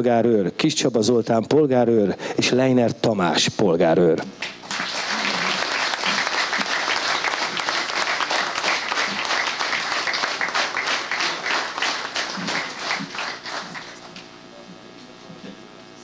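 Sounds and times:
audience applauding: 4.4s - 14.2s.

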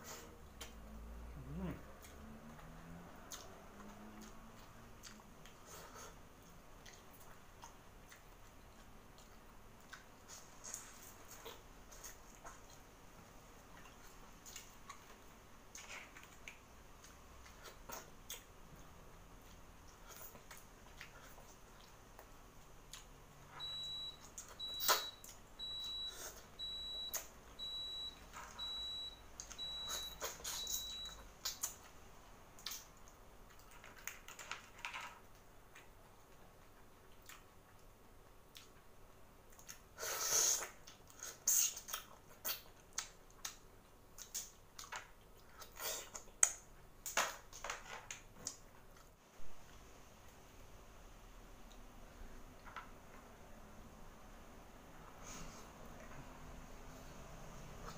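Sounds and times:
wet smacking and sucking: 39.6s - 43.6s.

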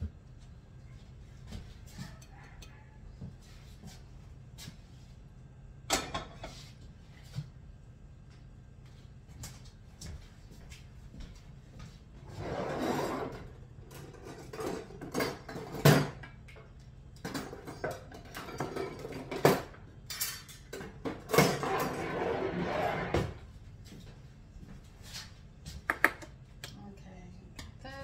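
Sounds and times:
dishes and utensils clattering: 5.9s - 6.6s, 13.2s - 16.3s, 17.2s - 22.1s.

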